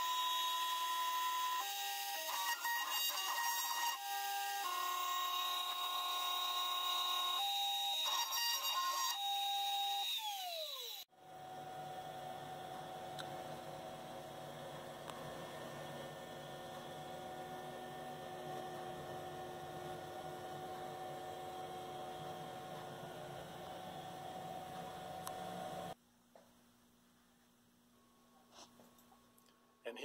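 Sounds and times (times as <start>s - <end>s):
router spindle whining: 0.0s - 11.1s.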